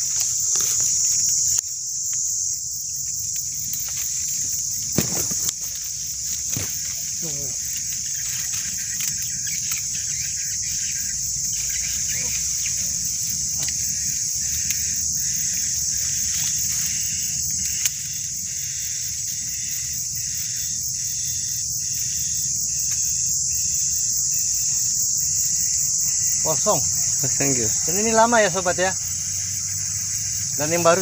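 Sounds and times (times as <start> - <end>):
branches snapping and leaves rustling: 0.0 - 2.3, 2.9 - 18.8
insect chirping in a pulse: 0.0 - 31.0
insects buzzing: 0.0 - 31.0.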